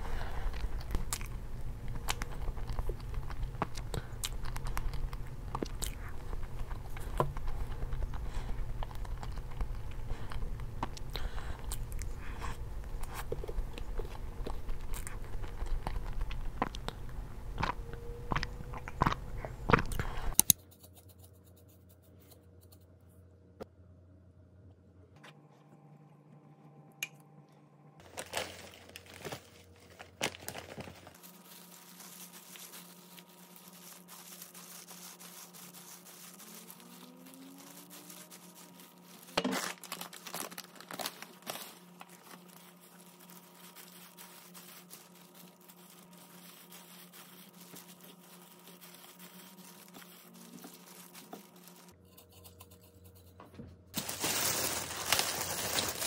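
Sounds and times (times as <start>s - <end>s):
plastic bag crinkling: 0.4s - 11.0s, 28.0s - 52.0s, 54.0s - 56.0s
packet rustling: 28.0s - 51.9s, 54.0s - 56.0s.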